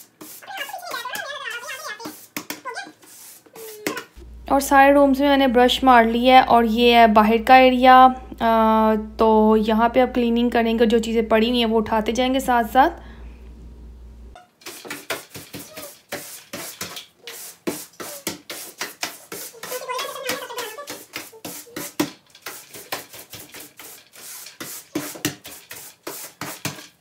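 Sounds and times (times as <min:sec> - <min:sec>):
broom sweeping wooden floor: 0:00.0 - 0:04.2, 0:14.6 - 0:27.0.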